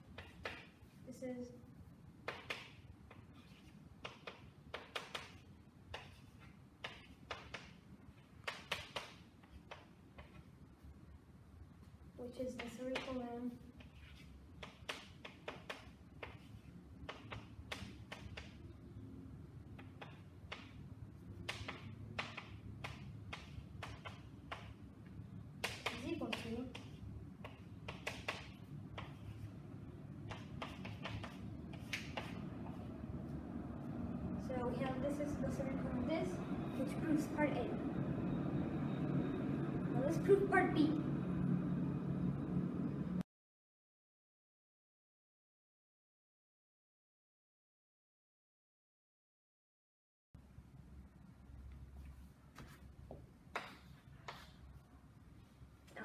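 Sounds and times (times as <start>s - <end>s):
chalk tapping and scratching: 0.0s - 1.0s, 2.2s - 10.6s, 12.4s - 18.6s, 19.7s - 24.8s, 25.6s - 29.6s, 30.2s - 33.0s, 52.0s - 54.8s
faint low room hum: 0.0s - 43.2s, 50.4s - 56.0s.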